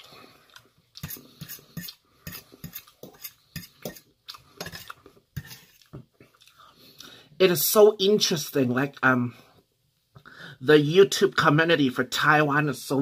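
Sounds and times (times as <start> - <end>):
fork scraping metal bowl: 1.0 - 5.8.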